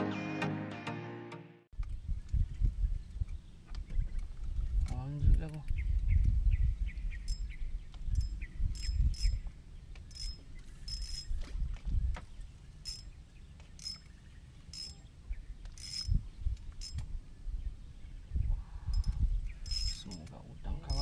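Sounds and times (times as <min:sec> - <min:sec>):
wind on microphone: 0:01.8 - 0:12.6, 0:15.2 - 0:21.0
fishing reel clicking: 0:14.8 - 0:15.0.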